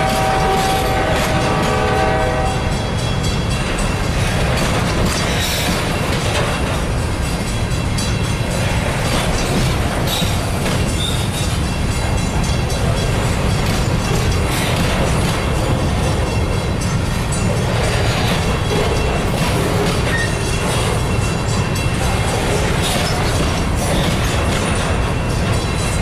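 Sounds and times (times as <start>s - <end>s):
locomotive horn: 0.0s - 2.8s
train wheels rumbling on rail: 0.0s - 26.0s
wheels clicking over rail joints: 0.0s - 26.0s
high wheel squeals: 17.4s - 20.7s.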